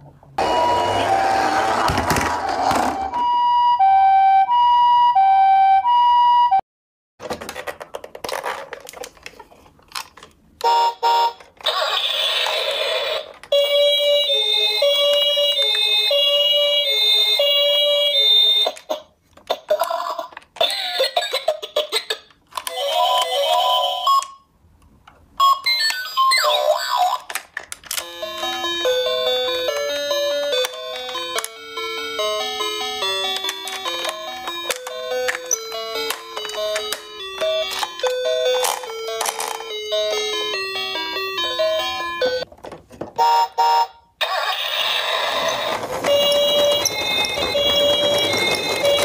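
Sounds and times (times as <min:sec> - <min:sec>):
plastic toy handling clicks: 0:07.4 - 0:10.4, 0:22.2 - 0:22.8, 0:27.1 - 0:28.1, 0:30.6 - 0:31.6, 0:33.3 - 0:39.7
toy electronic jingles and siren: 0:25.4 - 0:27.2.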